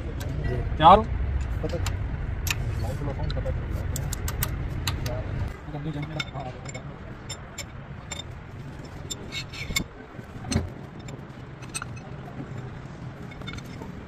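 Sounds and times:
steady low hum: 0.0s - 14.0s
metallic clicks and clinks: 5.8s - 14.0s.

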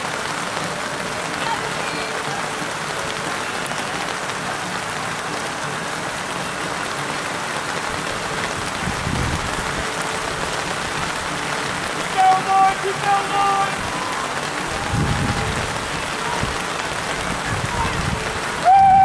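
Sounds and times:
rain falling: 0.0s - 19.0s.

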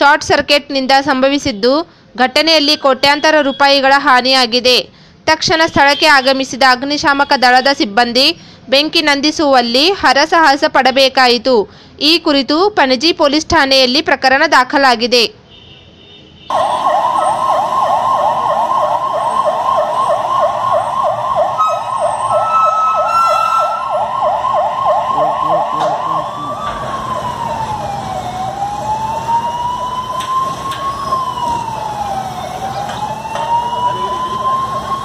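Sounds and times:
fire engine siren: 16.5s - 35.0s.

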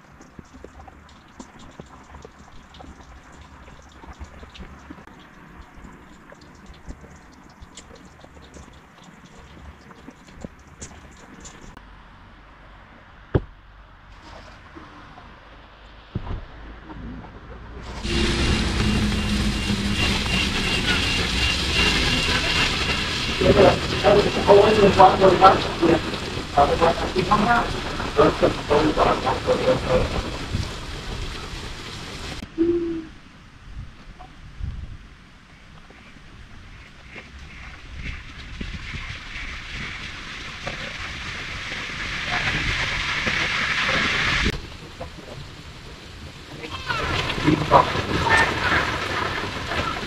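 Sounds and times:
cable car whirring rumble: 15.0s - 33.9s
cable car hiss and rattling: 17.8s - 32.4s, 39.0s - 50.0s
faint pulsing high tone: 18.0s - 23.5s, 32.5s - 33.2s.

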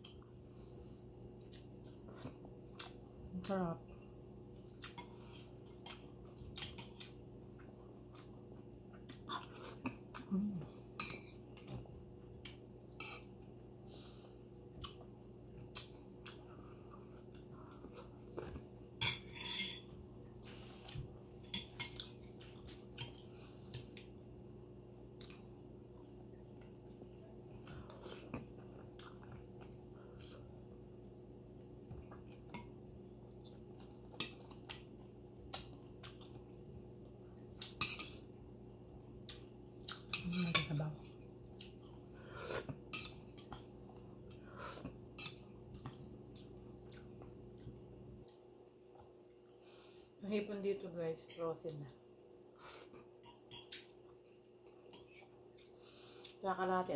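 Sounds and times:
faint steady hum: 0.0s - 56.9s
cutlery clinking on ceramic plates: 19.0s - 19.9s
chewing: 25.1s - 30.5s, 41.1s - 49.6s.

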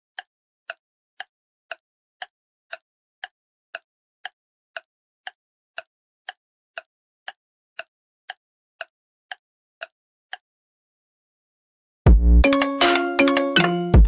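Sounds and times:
sharp ticks: 0.2s - 10.4s.

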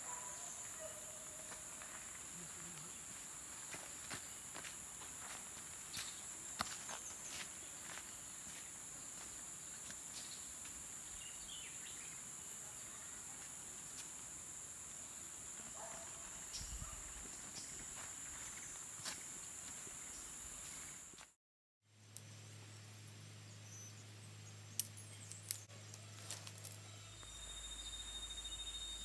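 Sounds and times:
high-pitched insect drone: 22.2s - 29.0s.

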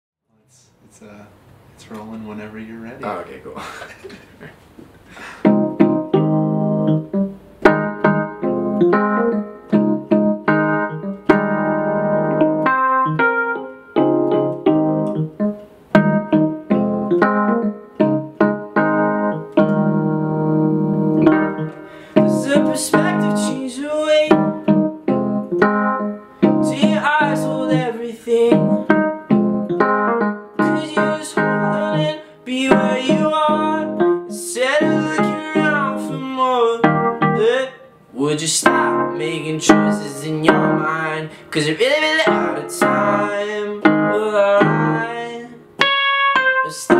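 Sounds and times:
piano chords on keyboard: 5.2s - 46.9s
man singing: 22.2s - 24.7s, 26.6s - 28.9s, 30.6s - 45.7s, 46.6s - 46.9s.

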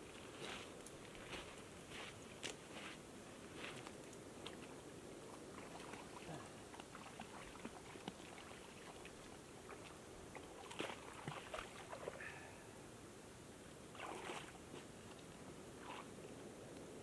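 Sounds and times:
river water washing: 5.2s - 12.3s, 13.9s - 14.8s.

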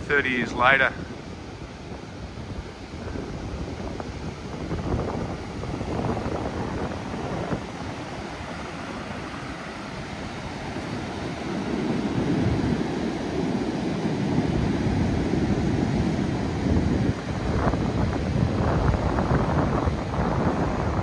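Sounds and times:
surf washing on beach: 0.0s - 21.0s
wind buffeting microphone: 0.0s - 21.0s.

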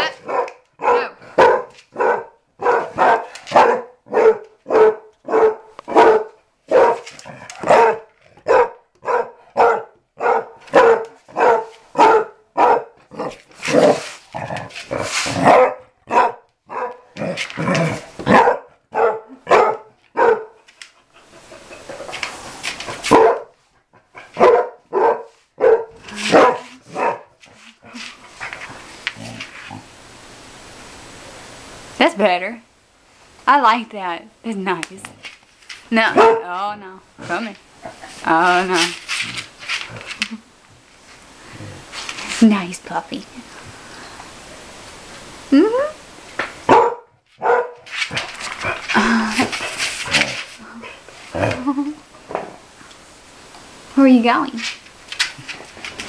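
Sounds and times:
dog barking: 0.2s - 14.0s, 15.4s - 17.2s, 18.2s - 20.6s, 23.1s - 23.6s, 24.3s - 27.4s, 36.1s - 36.5s, 46.7s - 47.8s
rough hissing noise: 13.2s - 15.5s, 20.6s - 24.4s, 25.2s - 46.7s, 47.3s - 56.0s.

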